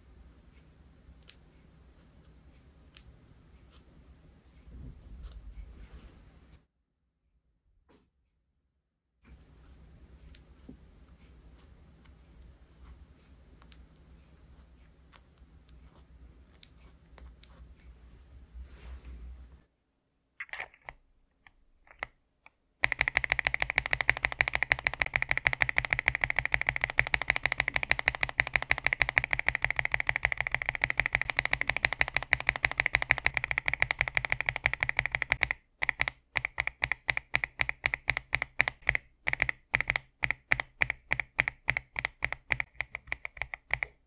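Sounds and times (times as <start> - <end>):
mechanical keyboard typing: 22.8 - 44.0.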